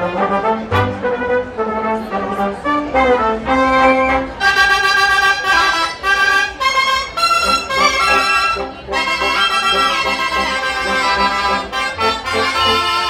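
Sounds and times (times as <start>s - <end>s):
brass instruments playing melody: 0.0s - 13.0s
double bass: 0.0s - 13.0s.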